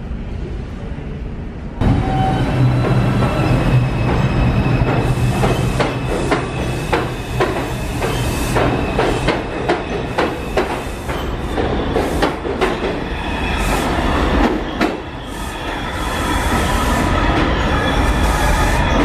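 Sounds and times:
train rumble: 0.0s - 19.0s
train wheels clacking on rails: 2.1s - 15.9s.

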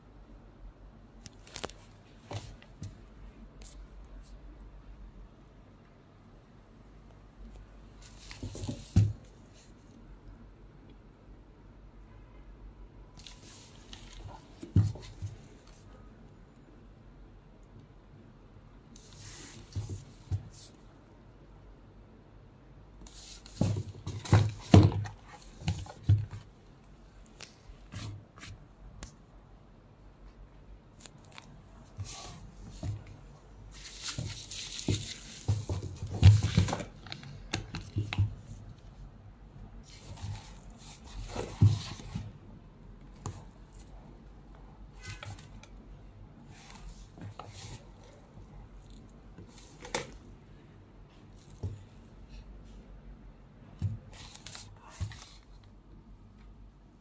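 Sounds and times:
bag and box handling rustles: 32.0s - 38.4s.

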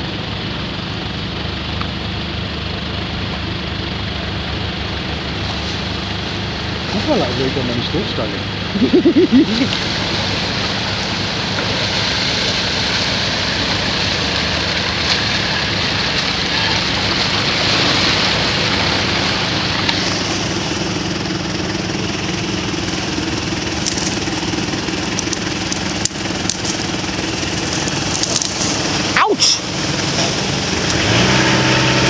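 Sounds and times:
off-road vehicle engine at low revs: 0.0s - 32.0s
sharp crackles: 22.8s - 29.7s.

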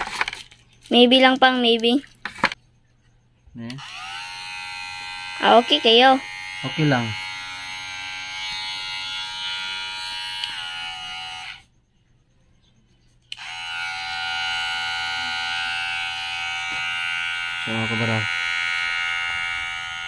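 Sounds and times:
hair clipper whining: 3.7s - 11.6s, 13.3s - 20.0s.

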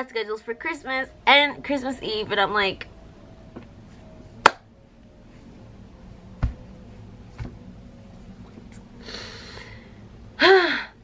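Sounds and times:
soft low thumps: 6.3s - 8.8s
breathy exhale: 9.0s - 11.0s.

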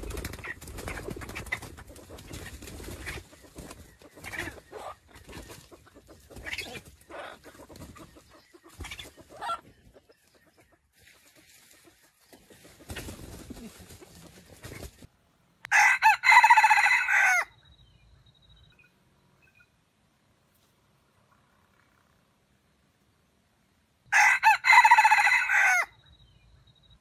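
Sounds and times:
rooster crowing: 15.7s - 17.5s, 24.1s - 26.0s.

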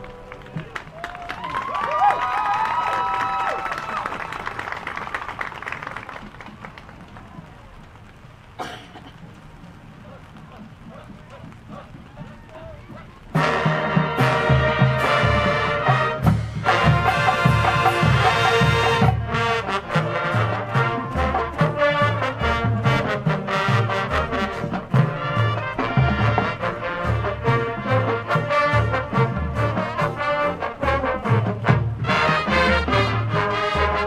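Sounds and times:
brass band playing loudly: 9.9s - 34.0s.

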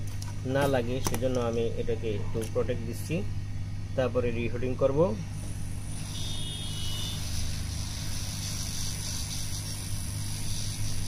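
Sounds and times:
hot air station fan hissing: 0.0s - 11.0s.

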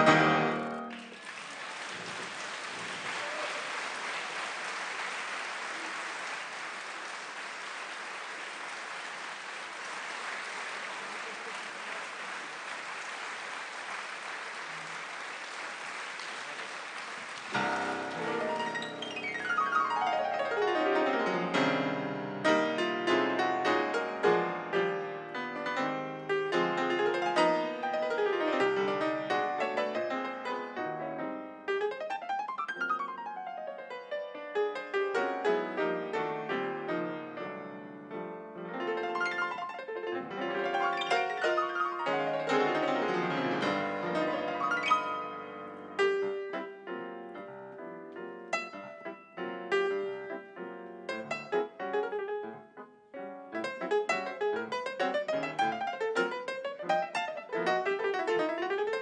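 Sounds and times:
jazz piano improvisation: 0.0s - 1.1s, 17.5s - 59.0s.

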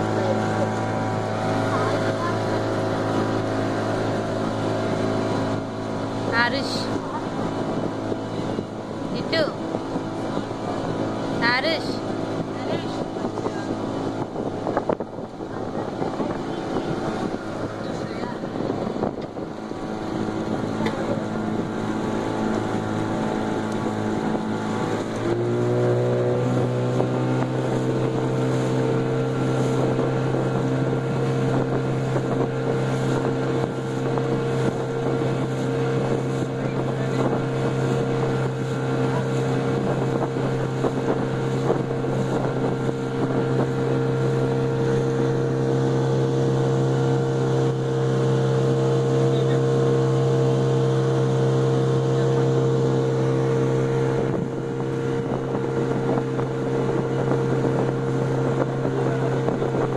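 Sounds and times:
motorboat engine running: 0.0s - 59.9s
water rushing along hull: 0.0s - 59.9s
wind on microphone: 0.0s - 59.9s.

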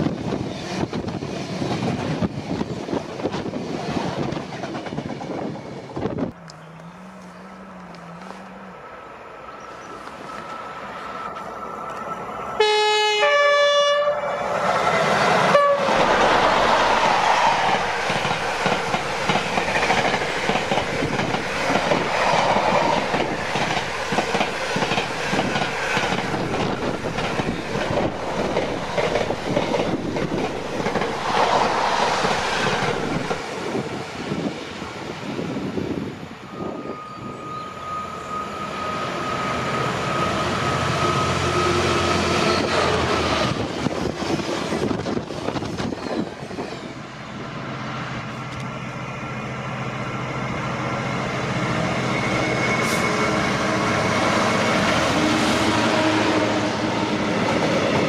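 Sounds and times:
freight train passing: 0.0s - 58.0s
two-note train horn: 12.6s - 14.6s, 15.5s - 16.0s
wheels clacking over rail joints: 15.2s - 33.5s.

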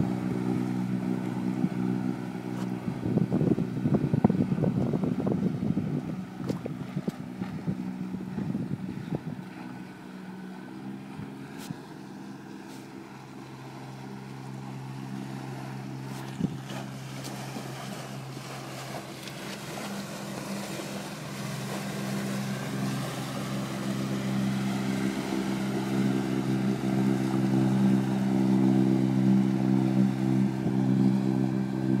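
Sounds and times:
boat engine running: 0.0s - 32.0s
water wash: 0.0s - 32.0s
wind noise: 2.8s - 9.4s.

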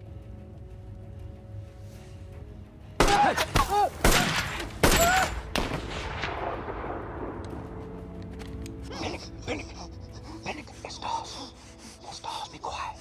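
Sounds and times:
rifle and machine-gun shots: 4.0s - 7.0s.

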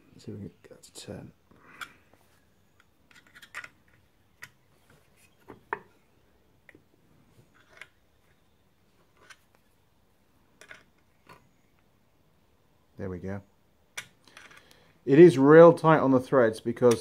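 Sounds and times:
metallic clicks and scrapes of tools: 2.7s - 4.6s, 7.5s - 8.0s, 9.1s - 9.7s, 14.0s - 14.8s.

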